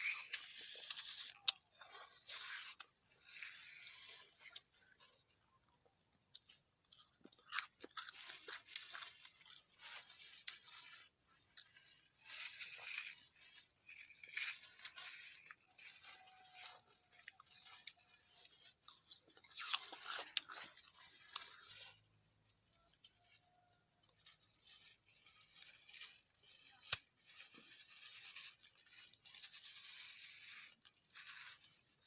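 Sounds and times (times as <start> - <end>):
knife cutting through fruit: 7.5 - 22.0, 24.4 - 32.0.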